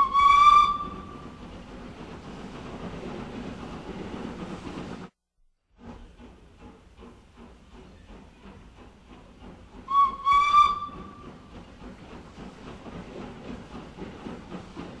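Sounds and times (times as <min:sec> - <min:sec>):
steam whistle blowing: 0:00.0 - 0:01.2, 0:09.9 - 0:11.2.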